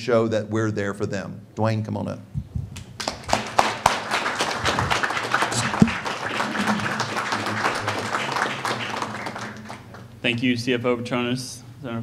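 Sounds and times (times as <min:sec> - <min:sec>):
crowd applauding: 0:02.8 - 0:10.2.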